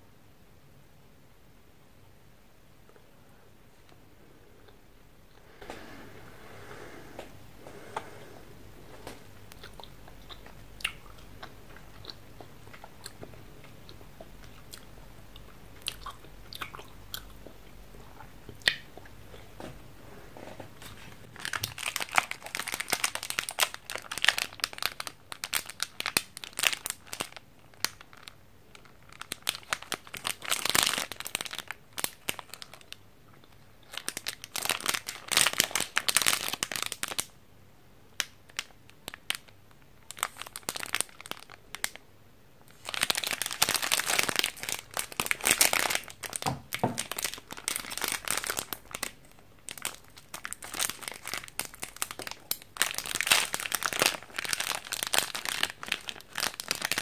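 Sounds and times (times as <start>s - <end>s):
plastic wrapper crinkling: 21.3s - 37.3s, 38.2s - 42.0s, 42.7s - 57.0s.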